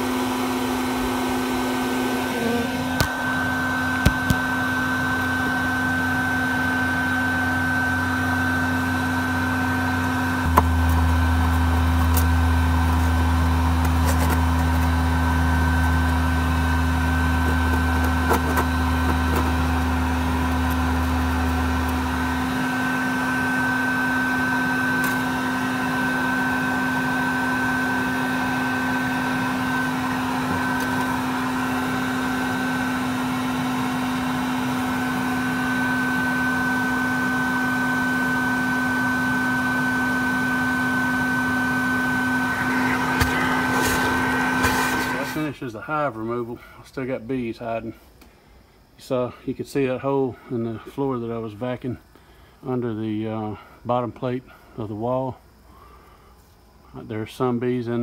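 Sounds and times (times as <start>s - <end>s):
vacuum motor humming: 0.0s - 45.5s
deep low drone: 10.4s - 18.2s.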